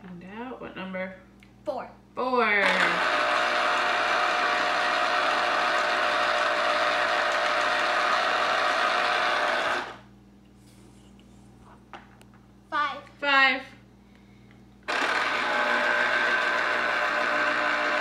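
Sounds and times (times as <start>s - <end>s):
citrus juicer motor whirring: 2.6s - 10.0s, 14.8s - 18.0s.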